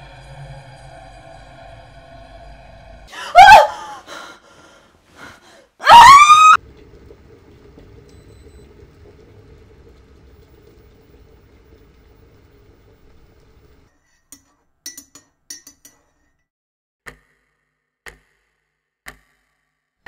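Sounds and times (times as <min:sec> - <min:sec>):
woman screaming: 0:03.1 - 0:04.4, 0:05.8 - 0:06.6
woman gasping: 0:03.1 - 0:05.8
electric kettle boiling: 0:06.6 - 0:13.9.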